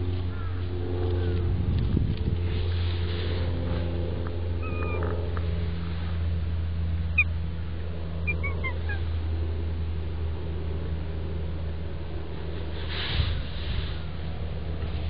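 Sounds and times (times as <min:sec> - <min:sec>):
low mechanical hum: 0:00.0 - 0:15.0
cats mewing: 0:04.6 - 0:05.2, 0:08.2 - 0:09.2.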